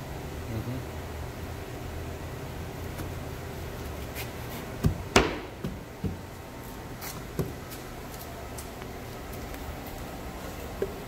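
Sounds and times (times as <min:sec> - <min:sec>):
steady low hum: 0:00.0 - 0:11.0
cabinet panels knocking: 0:04.8 - 0:06.2.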